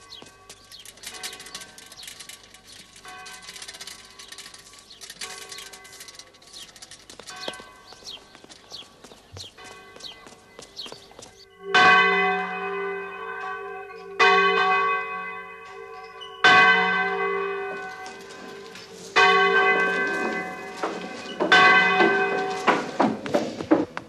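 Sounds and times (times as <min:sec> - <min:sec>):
large church bell tolling: 0:11.4 - 0:23.0.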